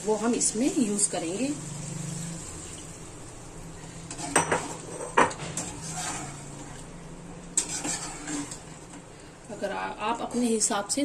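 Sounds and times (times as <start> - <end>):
metal spoon scraping cooking pot: 4.1 - 6.9, 7.6 - 8.9.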